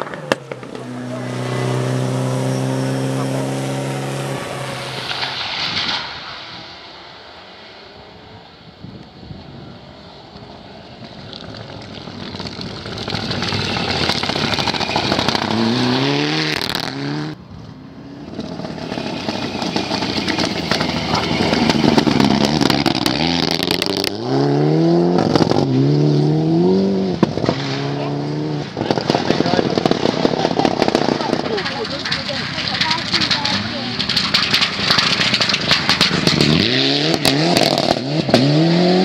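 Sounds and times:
rally cars passing at full throttle: 0:00.0 - 0:39.0
engine crackles: 0:09.0 - 0:39.0.

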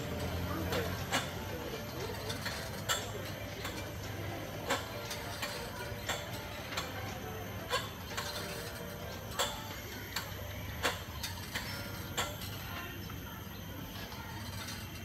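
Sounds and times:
steady low hum: 0:00.0 - 0:15.0
trampoline rig clicking and creaking: 0:00.0 - 0:15.0.

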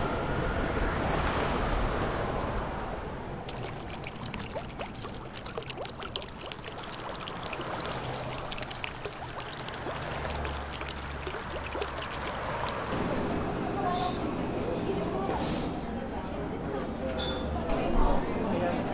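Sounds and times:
fountain water splashing into pool: 0:03.5 - 0:13.0.

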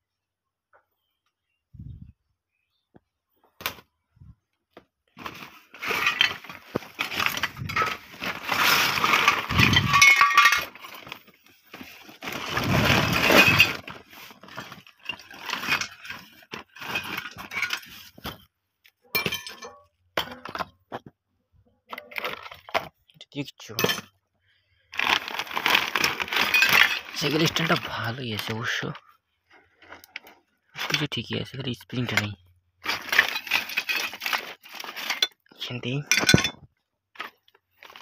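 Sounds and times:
bottles and cans clinking: 0:05.2 - 0:18.4, 0:19.0 - 0:20.9, 0:23.7 - 0:24.2, 0:25.0 - 0:28.9, 0:32.0 - 0:35.4, 0:36.0 - 0:38.0.

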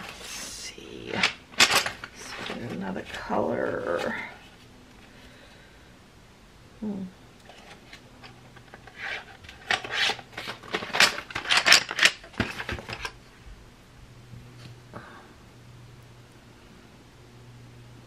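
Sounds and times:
pencil box rustles and taps: 0:07.4 - 0:13.2.

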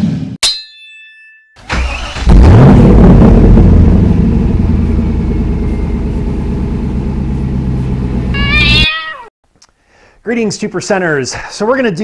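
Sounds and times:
engine idling: 0:03.3 - 0:08.4
cat meowing: 0:08.4 - 0:09.3.

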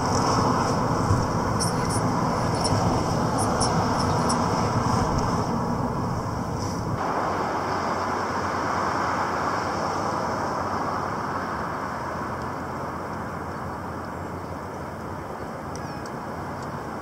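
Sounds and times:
city traffic passing cars: 0:00.0 - 0:17.0.

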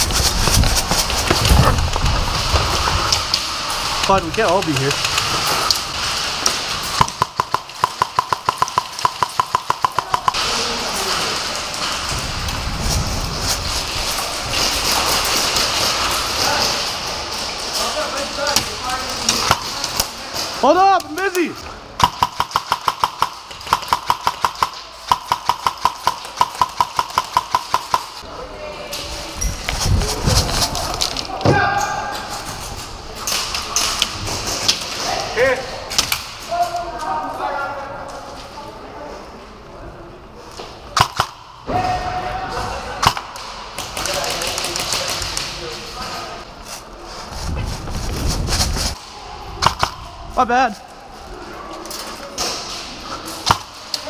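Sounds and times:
airsoft rifle rapid shots: 0:22.0 - 0:28.2.

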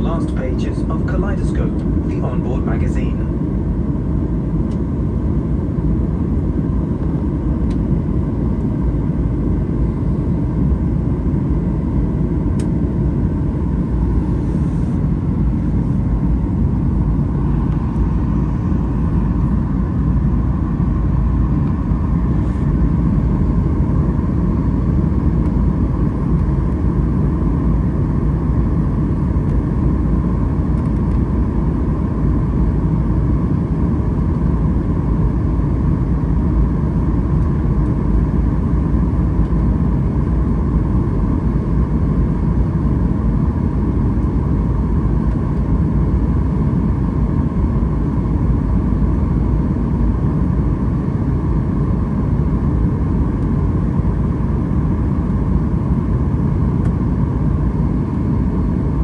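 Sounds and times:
jet engines roaring: 0:00.0 - 0:30.2.

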